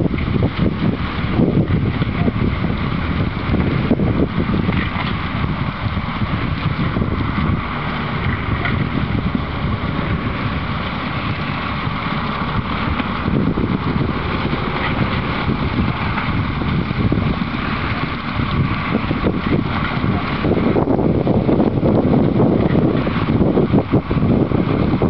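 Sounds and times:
reed harvester running: 0:00.0 - 0:25.0
wind buffeting microphone: 0:00.0 - 0:25.0.

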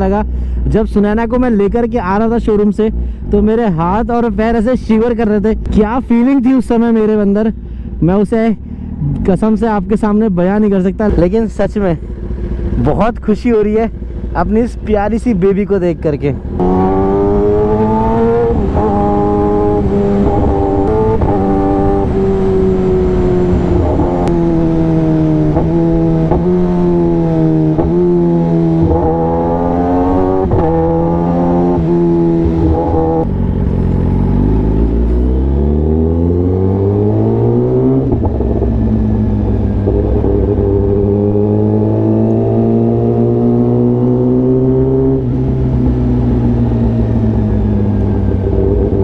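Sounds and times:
motorcycle engine revving: 0:11.0 - 0:49.0.

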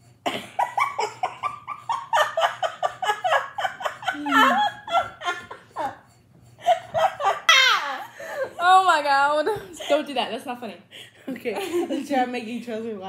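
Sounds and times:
boy laughing: 0:00.3 - 0:08.8.

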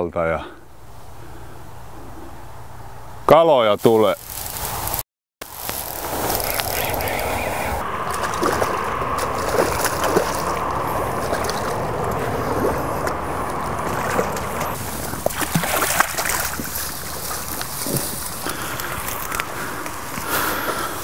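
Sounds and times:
river running over rapids: 0:03.8 - 0:21.0
water splashes: 0:03.8 - 0:21.0.

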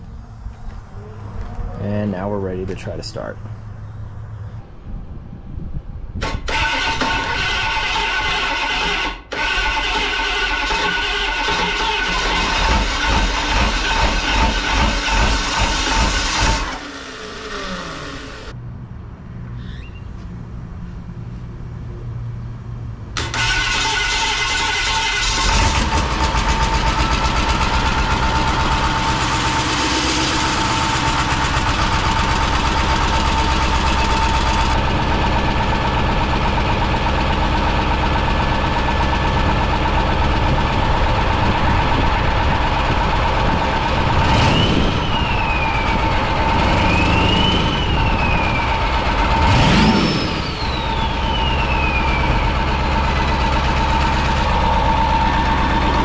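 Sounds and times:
diesel engine running: 0:00.0 - 0:18.6, 0:23.2 - 0:56.0
steady whine: 0:12.8 - 0:18.6, 0:25.8 - 0:56.0.

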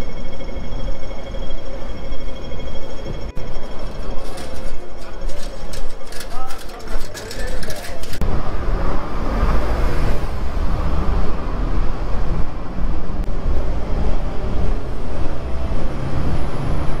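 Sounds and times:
low rumble of road traffic: 0:06.0 - 0:17.0.

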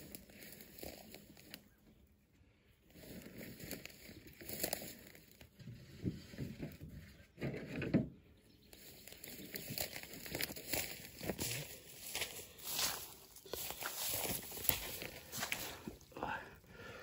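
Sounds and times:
rustling in dry grass and brush: 0:00.0 - 0:07.8, 0:08.4 - 0:16.9.

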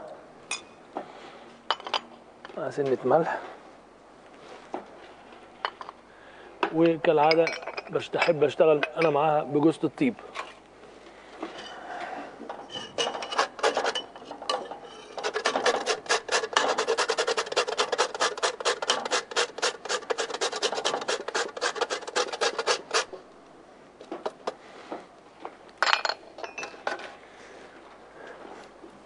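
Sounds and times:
nutmeg grated on metal grater: 0:13.0 - 0:23.1.

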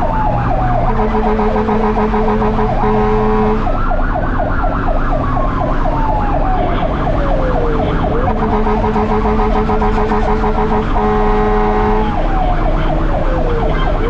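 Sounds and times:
fire engine running: 0:00.0 - 0:14.0
fire engine siren yelp: 0:00.0 - 0:14.0
siren wail: 0:00.0 - 0:14.0
steady low siren tone: 0:00.0 - 0:14.0.

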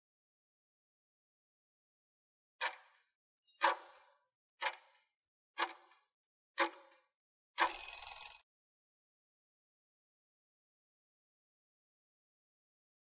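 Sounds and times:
short alarm tone: 0:07.6 - 0:08.4
timer ticking: 0:07.6 - 0:08.4.

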